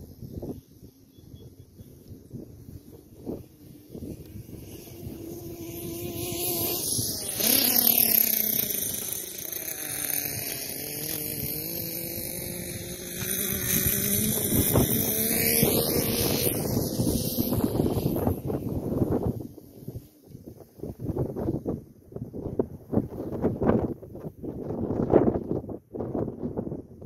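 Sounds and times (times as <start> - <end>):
toy truck engine running hard: 2.2 - 20.2.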